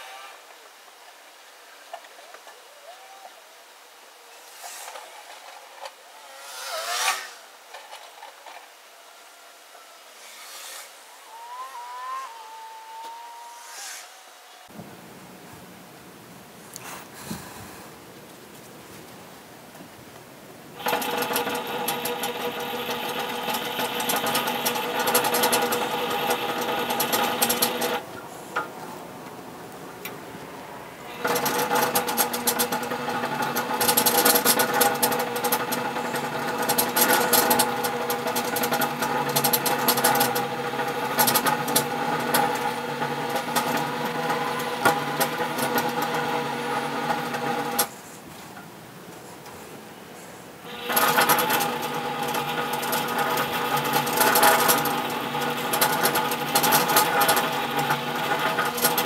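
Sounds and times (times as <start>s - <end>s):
metal rubbing: 4.4s - 8.9s, 10.0s - 14.7s
bead roller machine whine: 4.4s - 14.8s, 20.8s - 28.1s, 30.9s - 47.9s, 50.6s - 59.0s.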